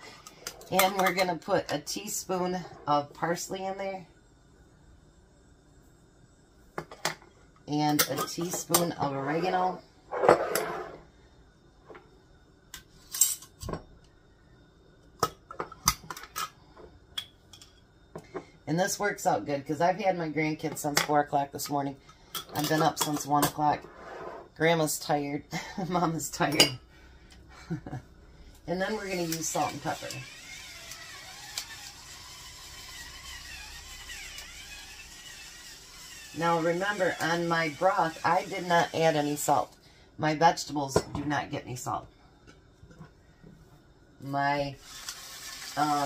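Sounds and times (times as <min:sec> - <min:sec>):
short scrape: 0:10.1 - 0:11.0, 0:23.8 - 0:24.6
electric grinder whirring: 0:28.9 - 0:39.4, 0:44.8 - 0:46.0.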